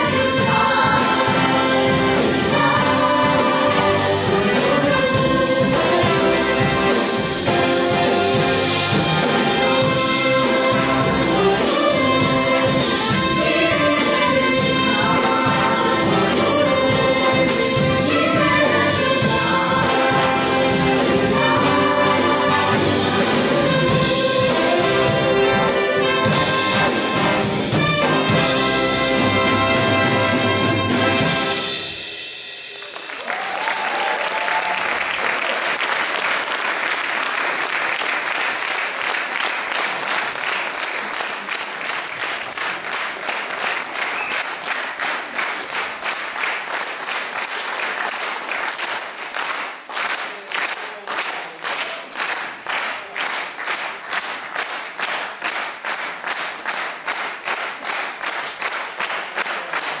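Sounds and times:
rhythmic clapping in unison: 0:00.0 - 0:31.5, 0:32.7 - 1:00.0
big band chord: 0:00.0 - 0:32.7
audience applause: 0:32.7 - 1:00.0.

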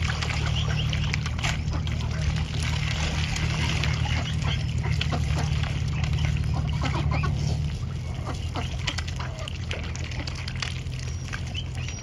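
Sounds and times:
steady low rumble: 0:00.0 - 0:12.0
waterfowl calling: 0:00.0 - 0:12.0.

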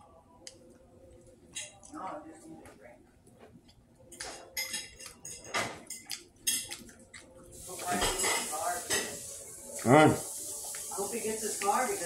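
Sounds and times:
metal spoon clinking on dish: 0:04.1 - 0:06.8.

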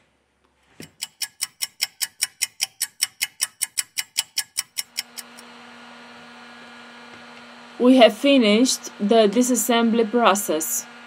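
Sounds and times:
rapid even ticking: 0:00.8 - 0:05.4
steady hum: 0:00.8 - 0:11.0.

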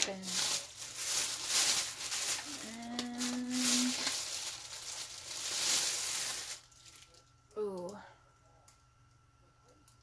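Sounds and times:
plastic bag crinkling: 0:00.0 - 0:07.3
woman humming: 0:02.4 - 0:04.1.

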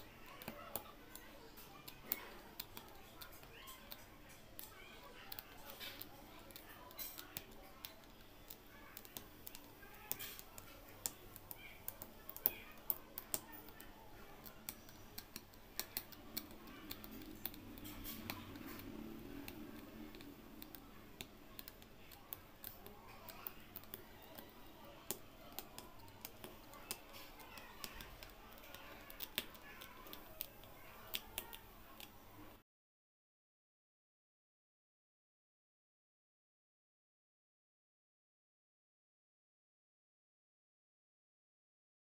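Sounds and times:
embroidery hook clicking through cloth: 0:00.0 - 0:32.6.

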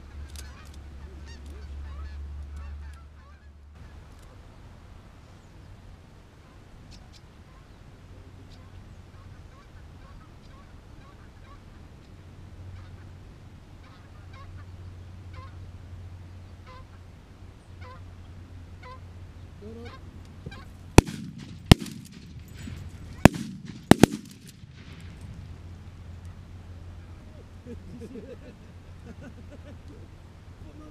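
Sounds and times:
goose honks: 0:01.2 - 0:03.5, 0:17.8 - 0:18.0
shotgun blasts: 0:21.0 - 0:25.3.

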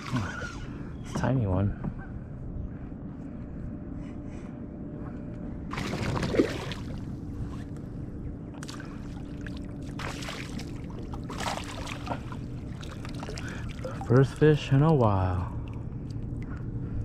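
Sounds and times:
water splashing and sloshing: 0:00.0 - 0:00.7, 0:05.7 - 0:07.8, 0:08.5 - 0:17.0
steady low rumble: 0:00.0 - 0:17.0.

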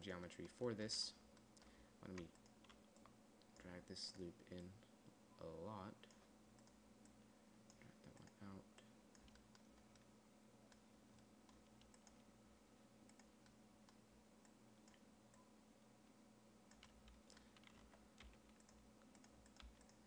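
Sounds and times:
low steady hum: 0:00.0 - 0:20.0
computer mouse clicks: 0:01.3 - 0:03.7, 0:06.0 - 0:10.1, 0:10.7 - 0:12.3, 0:13.0 - 0:15.5, 0:16.7 - 0:20.0.

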